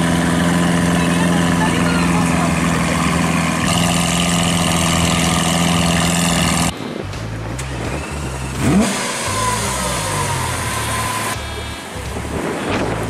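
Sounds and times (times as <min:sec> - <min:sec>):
car engine idling: 0:00.0 - 0:13.0
low rumble: 0:00.0 - 0:13.0.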